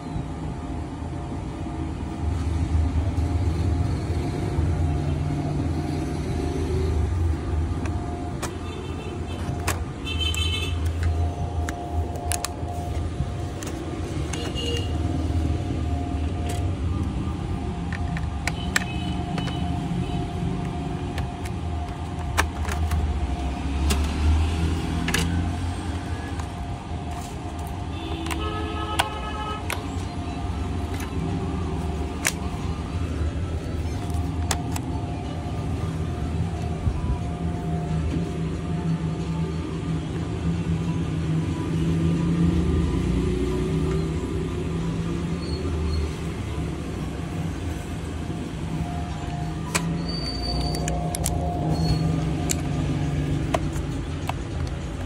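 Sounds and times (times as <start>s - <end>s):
clicks and taps of laptop parts: 9.4s - 12.7s, 13.5s - 15.0s, 17.8s - 19.9s, 20.6s - 23.2s, 25.0s - 25.4s, 26.3s - 30.1s, 32.0s - 32.6s, 53.4s - 55.0s.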